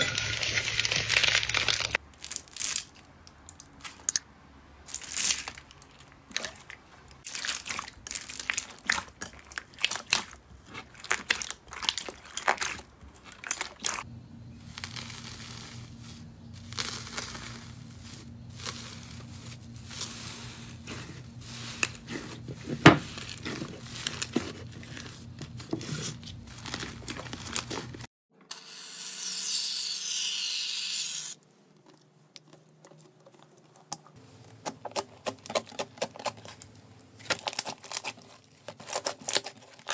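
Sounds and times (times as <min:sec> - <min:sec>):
slime crackling and crunching: 0:00.0 - 0:04.2, 0:04.9 - 0:28.1, 0:31.8 - 0:39.9
faint steady hum: 0:12.8 - 0:28.0
crusted slime cracking: 0:16.6 - 0:20.3.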